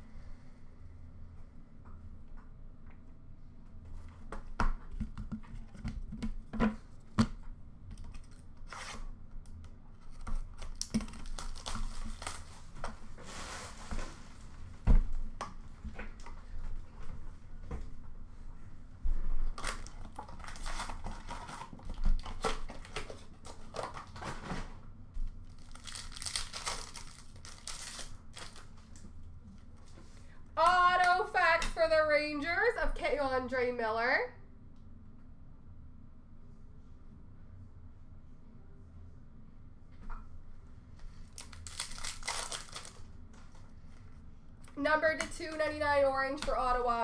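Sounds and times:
wrapper tearing and crinkling: 10.1s - 12.7s, 19.6s - 24.1s, 25.5s - 28.7s, 41.2s - 43.1s.

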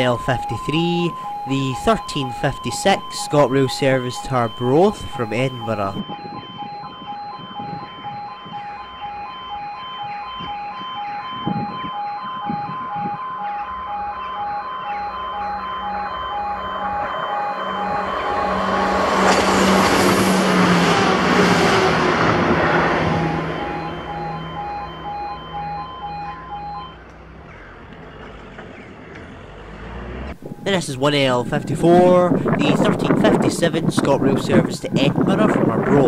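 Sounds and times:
level crossing alarm tones: 0.0s - 27.0s, 30.3s - 36.0s
diesel train passing: 13.7s - 32.9s.

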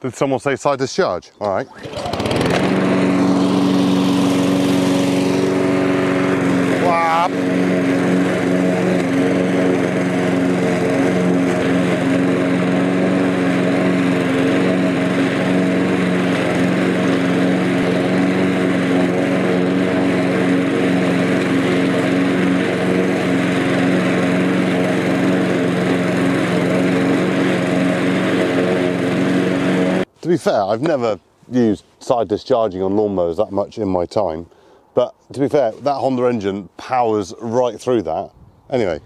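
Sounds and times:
lawn mower engine cutting grass: 1.4s - 30.2s.

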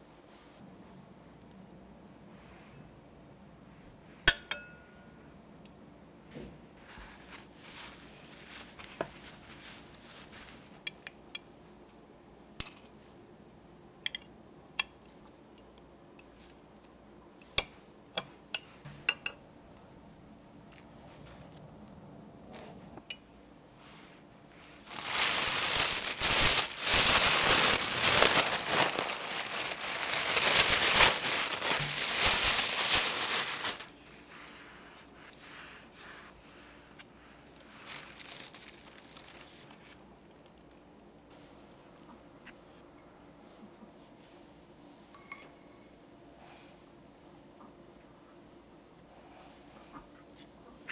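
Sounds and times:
knife clinking on ceramic plate: 4.3s - 5.0s, 45.2s - 45.6s
plastic bag crinkling: 24.7s - 34.0s, 37.5s - 40.8s.

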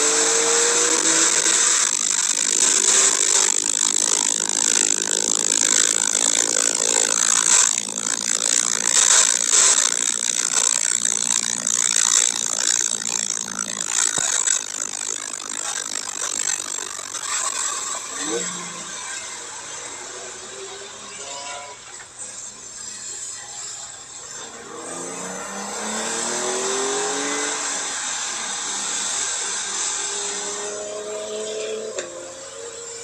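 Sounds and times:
faint car engine: 24.1s - 33.0s.

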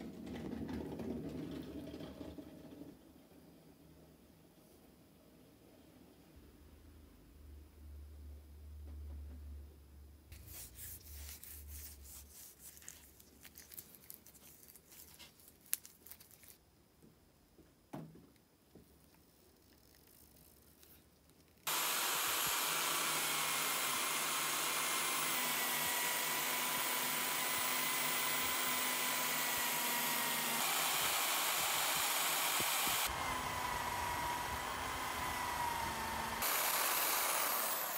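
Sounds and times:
drill press motor whirring: 21.7s - 37.9s.

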